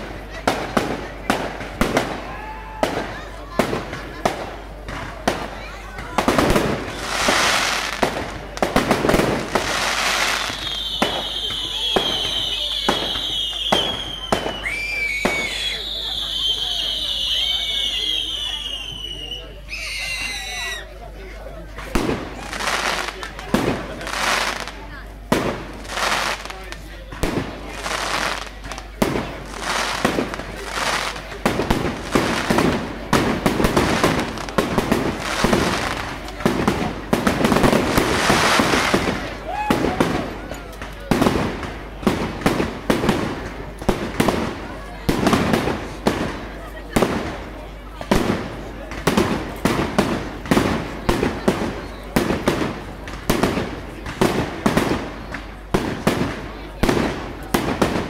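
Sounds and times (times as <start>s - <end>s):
fireworks bangs: 0.0s - 58.0s
fireworks crackling: 0.0s - 58.0s.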